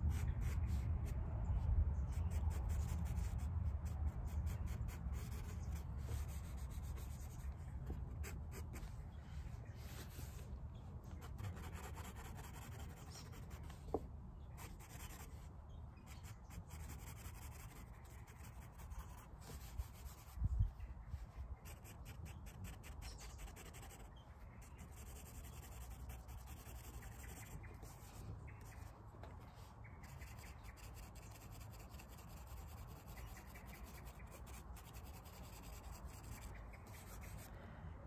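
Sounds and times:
pencil scratching on paper: 2.2s - 7.4s, 11.2s - 13.8s, 14.6s - 15.3s, 16.1s - 20.3s, 21.6s - 28.1s, 30.0s - 37.5s.

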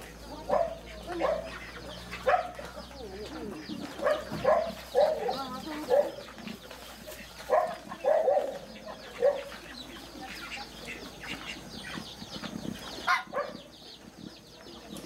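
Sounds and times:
rooster clucking: 0.0s - 13.7s.

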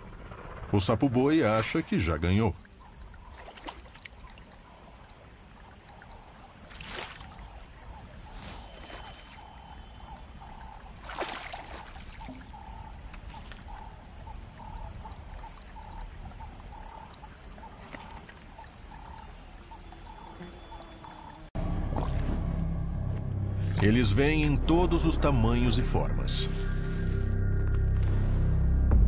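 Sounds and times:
high insect drone: 0.0s - 22.2s
water splashes: 1.4s - 22.4s.

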